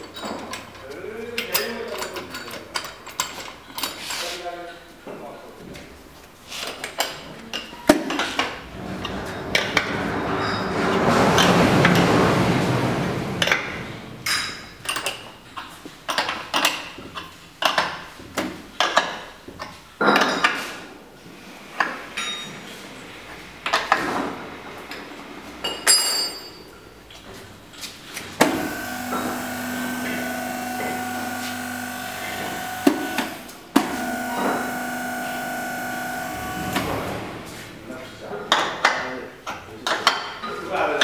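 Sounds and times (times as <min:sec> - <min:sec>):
metallic knocks and clanks: 0:08.0 - 0:15.1
electric pump humming: 0:28.4 - 0:37.6.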